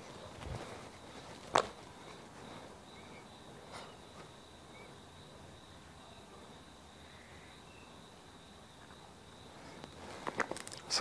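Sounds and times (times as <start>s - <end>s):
faint steady high tone: 0.9s - 9.9s
small parts clicking: 10.3s - 10.9s.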